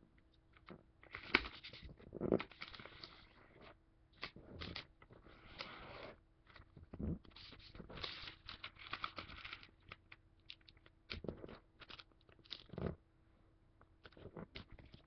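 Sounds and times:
paper rustling and crinkling: 0:07.3 - 0:10.0.

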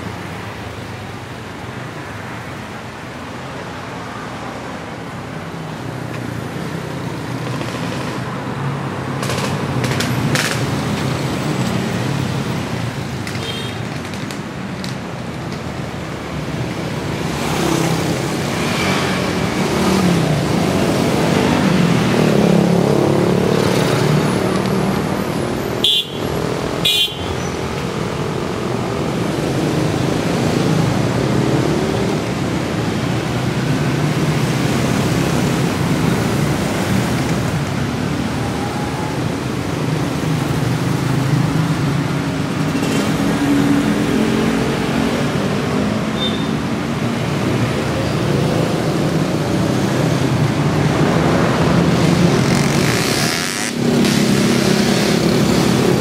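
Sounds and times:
road traffic passing: 0:00.0 - 0:56.0.

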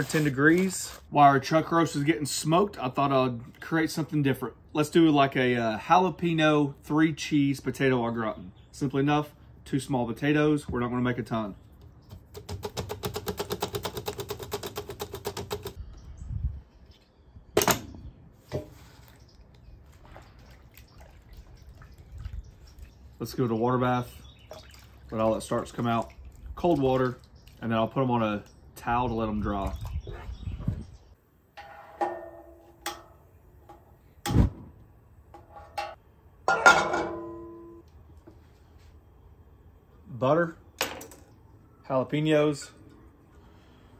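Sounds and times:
skillet clanging on burner grate: 0:31.6 - 0:33.2, 0:35.4 - 0:37.7.

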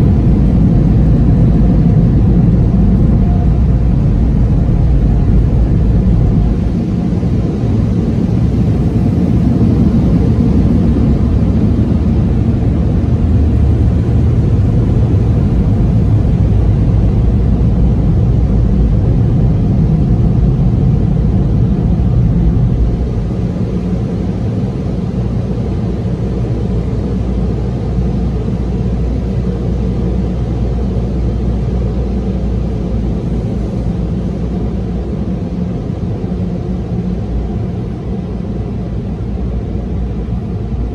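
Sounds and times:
car wash machinery roar: 0:00.0 - 0:40.9.

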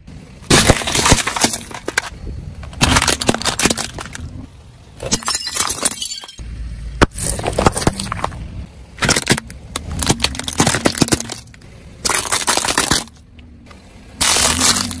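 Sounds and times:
plastic toys cracking: 0:00.5 - 0:04.3, 0:09.0 - 0:13.3, 0:14.2 - 0:15.0.

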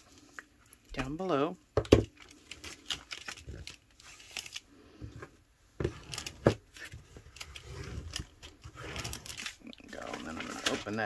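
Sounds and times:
crisp paper crackles: 0:02.1 - 0:04.7, 0:06.1 - 0:11.0
paper rustling and sliding: 0:02.3 - 0:11.0.

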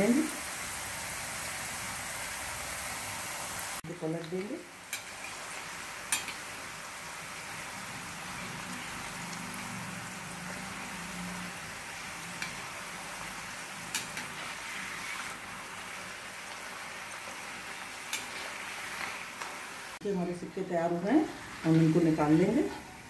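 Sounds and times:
chips sizzling in hot oil: 0:00.0 - 0:23.0
metal spatula clicking on pan: 0:06.1 - 0:06.4, 0:13.9 - 0:14.3.

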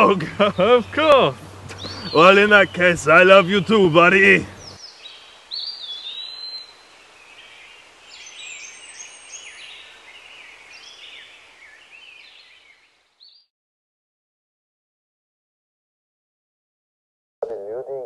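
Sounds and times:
outdoor ambient hiss: 0:00.0 - 0:13.5
small birds chirping: 0:00.0 - 0:13.5.

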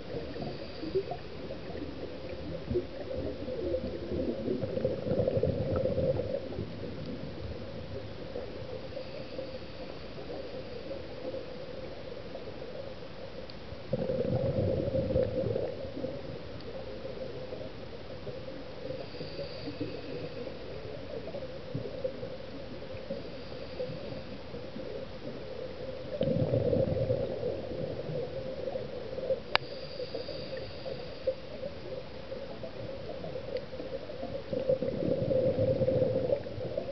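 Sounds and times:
exhaled bubbles gurgling: 0:00.0 - 0:13.0, 0:13.7 - 0:36.9
faint high hiss: 0:00.0 - 0:13.9, 0:14.7 - 0:36.9
steady underwater hum: 0:00.0 - 0:36.9.

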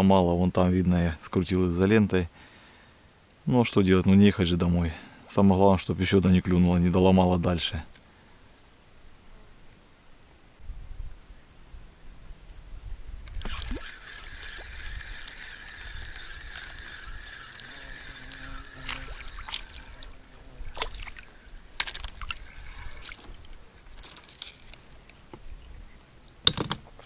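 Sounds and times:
steady high whine: 0:13.2 - 0:22.1
water sloshing and splashing: 0:13.3 - 0:25.0.

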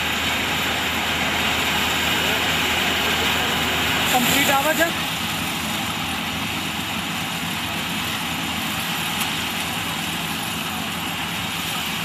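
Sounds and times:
threshing machinery whirring: 0:00.0 - 0:07.6
combine harvester engine drone: 0:00.0 - 0:12.0.

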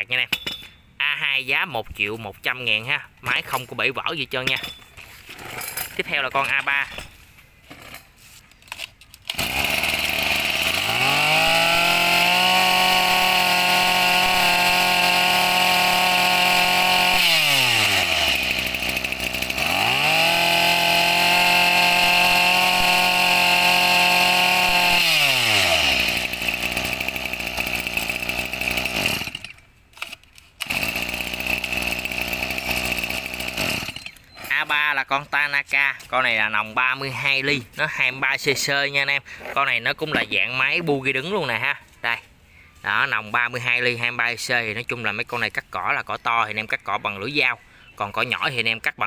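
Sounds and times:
brush cutter engine revving: 0:08.8 - 0:34.8.

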